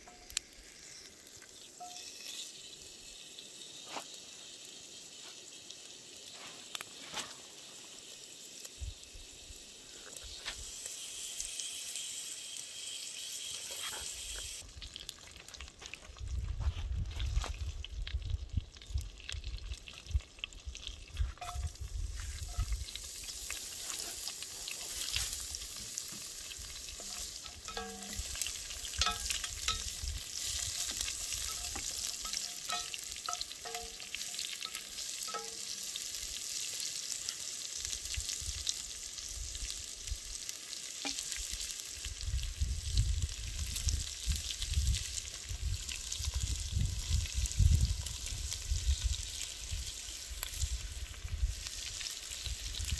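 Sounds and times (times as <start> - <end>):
food sizzling and crackling in a pot: 0.0 - 52.9
wooden stick stirring pot: 21.4 - 21.7, 23.6 - 35.8.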